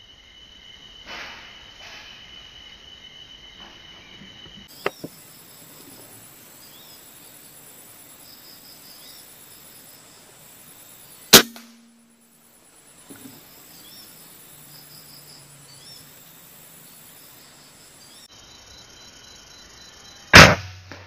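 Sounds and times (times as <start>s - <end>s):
insects chirring: 0.0s - 21.0s
air rifle shot: 11.3s - 11.9s, 20.4s - 21.0s.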